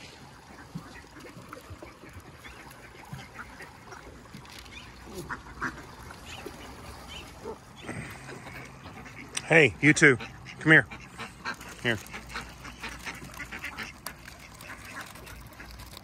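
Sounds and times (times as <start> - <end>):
faint duck calls: 5.0 - 15.7.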